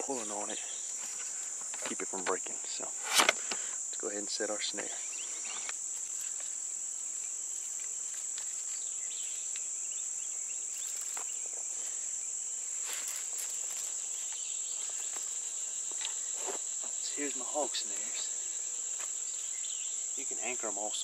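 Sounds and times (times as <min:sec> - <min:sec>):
insects chorus: 0:00.0 - 0:21.0.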